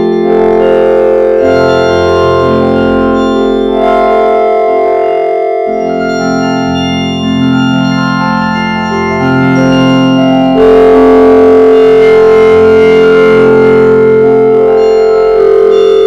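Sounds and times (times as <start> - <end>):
electronic organ-like chords: 0.0 - 16.0.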